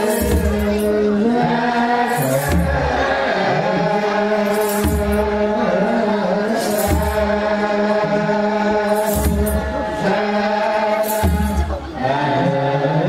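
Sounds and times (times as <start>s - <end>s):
choir chanting a hymn: 0.0s - 13.0s
high rattle: 4.3s - 5.4s.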